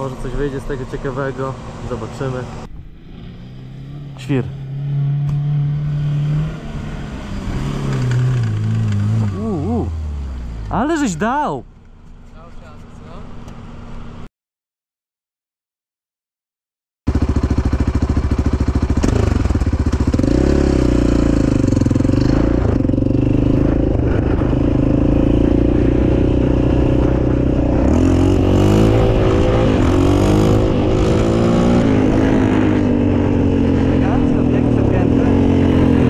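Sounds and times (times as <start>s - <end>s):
quad engine running: 3.9s - 11.4s, 17.1s - 36.0s.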